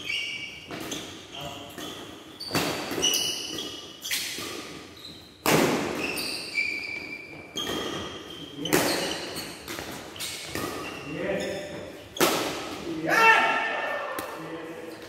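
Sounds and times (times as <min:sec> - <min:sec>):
shoes squeaking on court floor: 0:00.0 - 0:12.9
rackets hitting shuttlecock: 0:00.6 - 0:06.2, 0:07.6 - 0:13.0, 0:14.1 - 0:14.6.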